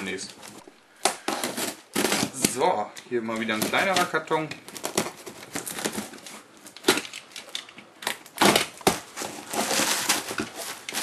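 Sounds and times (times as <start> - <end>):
plastic wrapping crinkling: 0.0 - 11.0
cardboard box cracking and ripping: 1.0 - 2.7, 3.5 - 7.1, 8.0 - 11.0.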